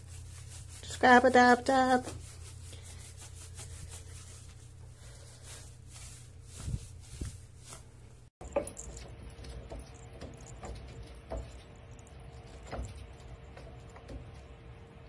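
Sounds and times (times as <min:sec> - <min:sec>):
kitten paws tapping on wood: 0:08.4 - 0:14.6.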